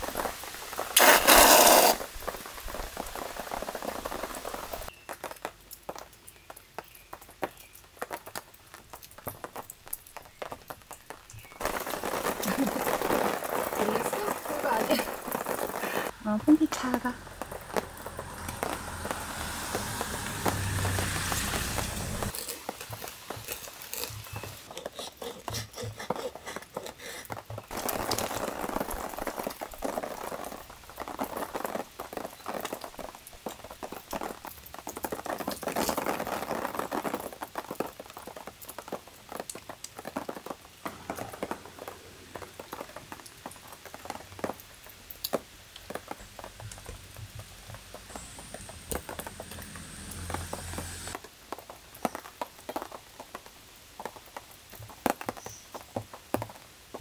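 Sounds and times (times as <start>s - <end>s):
knife scraping through waffle: 1.0s - 2.0s.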